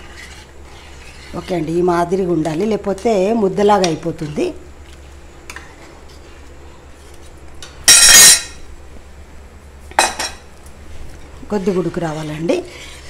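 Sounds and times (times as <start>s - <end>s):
dish clink: 7.9s - 8.6s.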